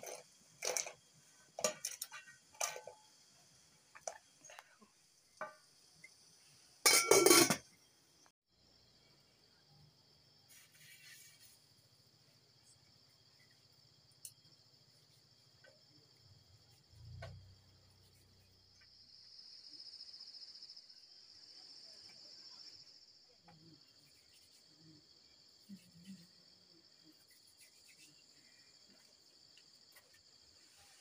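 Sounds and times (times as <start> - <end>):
insects chirring: 0.0 - 31.0.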